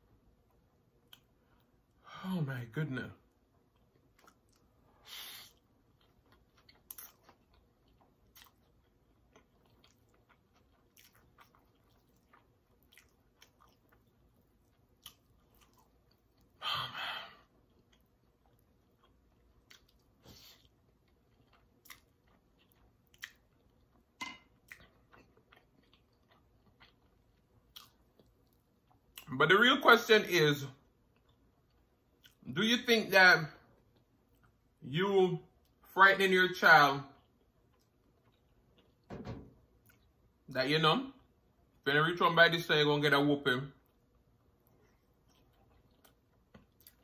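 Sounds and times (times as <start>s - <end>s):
chewing mouth clicks: 5.5s - 16.5s, 17.7s - 29.3s, 44.6s - 47.0s.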